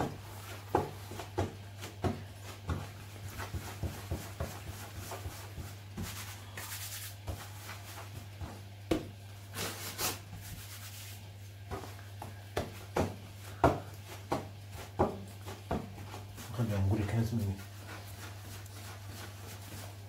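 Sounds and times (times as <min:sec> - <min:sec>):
dough thump: 0:00.0 - 0:06.2, 0:07.2 - 0:10.6, 0:11.6 - 0:16.5
hands rubbing dough on countertop: 0:00.0 - 0:20.0.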